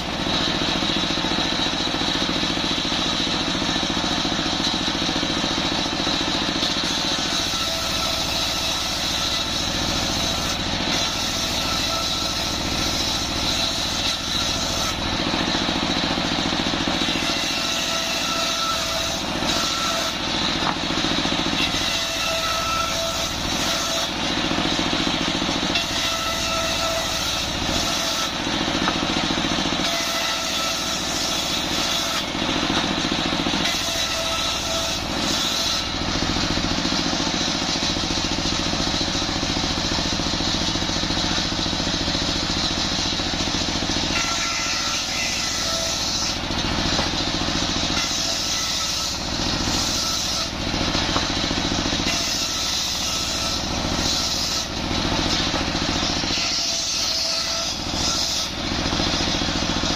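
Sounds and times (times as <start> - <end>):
circular saw cutting wood: 0.0 - 59.9
saw blade whine: 0.0 - 59.9.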